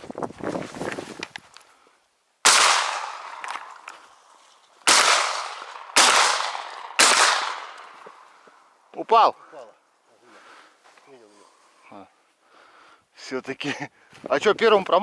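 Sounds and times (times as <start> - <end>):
shotgun shots with echo: 2.4 - 3.8, 4.8 - 7.9.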